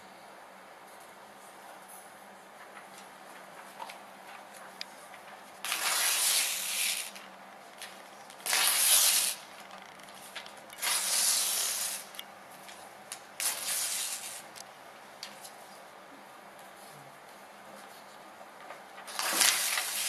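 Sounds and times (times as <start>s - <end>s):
faint paper rustles: 0.9s - 14.6s, 15.2s - 15.9s, 16.6s - 20.0s
paper tearing slowly: 5.6s - 12.2s, 13.4s - 14.6s, 19.0s - 20.0s.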